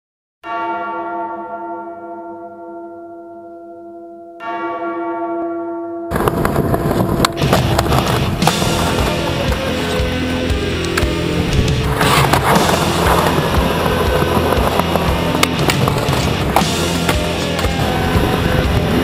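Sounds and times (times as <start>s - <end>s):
large bell ringing: 0.4s - 11.5s, 12.4s - 19.0s
loud music: 7.4s - 19.0s.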